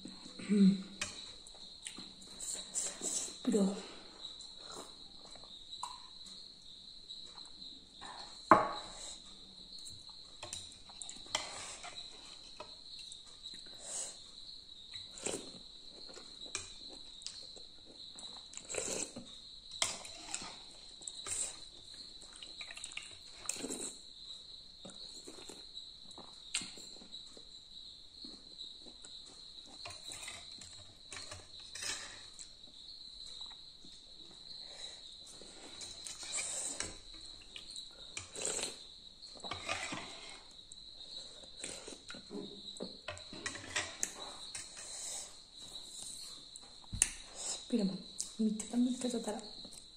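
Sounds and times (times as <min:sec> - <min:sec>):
slurping and chewing noodles: 0:14.9 - 0:27.2, 0:34.5 - 0:42.3.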